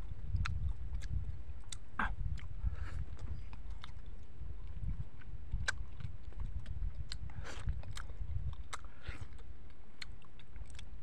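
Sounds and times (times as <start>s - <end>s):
low steady rumble: 0.0s - 11.0s
wet chewing and biting: 0.0s - 11.0s.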